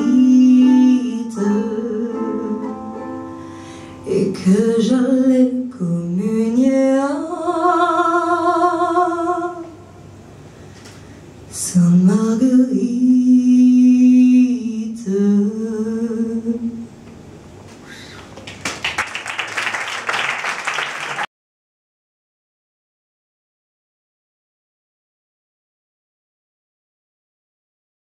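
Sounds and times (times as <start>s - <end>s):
woman singing: 0.0s - 3.0s, 4.0s - 9.8s, 11.5s - 16.9s
audience clapping: 18.2s - 21.3s.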